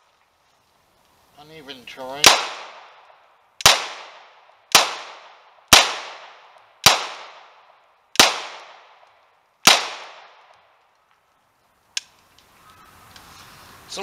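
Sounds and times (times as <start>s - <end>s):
pistol shots with echo: 2.2s - 3.0s, 3.6s - 9.0s, 9.6s - 10.5s.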